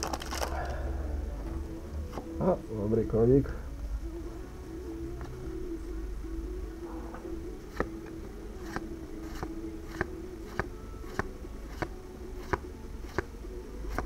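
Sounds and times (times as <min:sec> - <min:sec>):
faint steady hum: 0:00.0 - 0:14.0
trading cards flipping clicks: 0:08.6 - 0:13.3.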